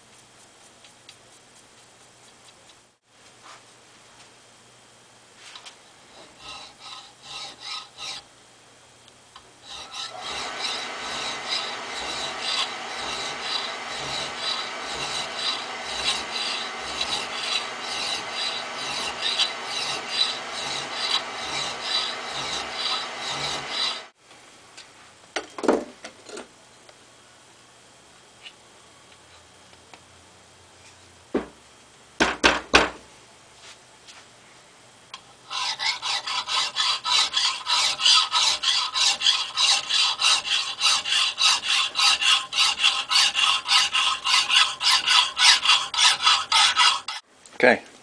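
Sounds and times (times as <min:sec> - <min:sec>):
file rasping on steel: 0:06.1 - 0:08.3, 0:09.6 - 0:24.2, 0:35.5 - 0:47.2.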